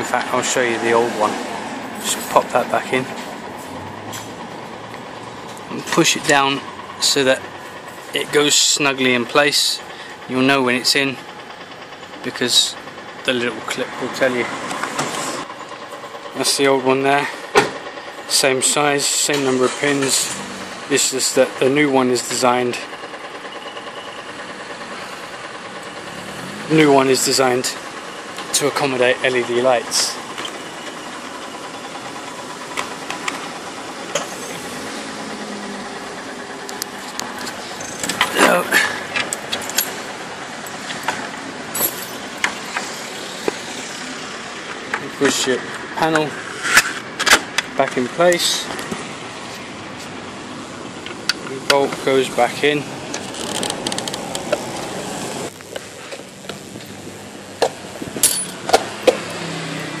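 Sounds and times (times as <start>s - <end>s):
engine hum: 0.0s - 60.0s
sharp knocks of hard parts: 17.5s - 17.8s
small clicks of hard parts: 53.1s - 54.9s
metallic clink: 58.2s - 58.7s.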